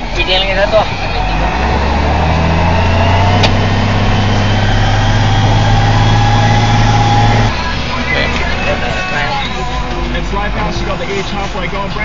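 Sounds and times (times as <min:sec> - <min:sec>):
tractor diesel engine running: 0:00.0 - 0:12.0
faint rising whine: 0:01.3 - 0:09.4.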